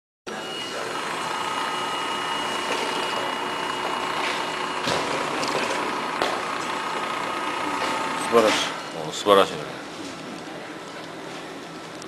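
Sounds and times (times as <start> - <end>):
cutting machine running with whine: 0.3 - 9.5.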